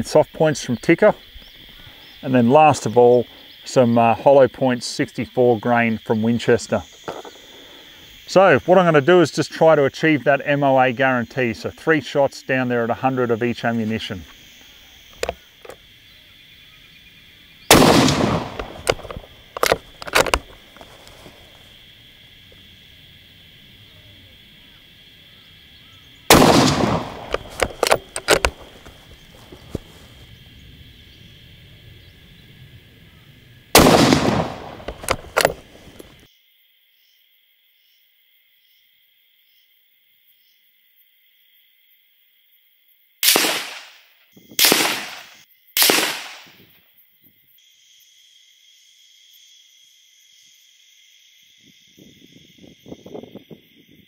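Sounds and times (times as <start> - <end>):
rifle shots: 17.7 - 20.4, 26.3 - 28.7, 33.8 - 36.0, 43.2 - 44.0, 44.6 - 46.5
rifle bolt clicks: 17.7 - 20.6, 26.3 - 28.7, 33.8 - 36.1.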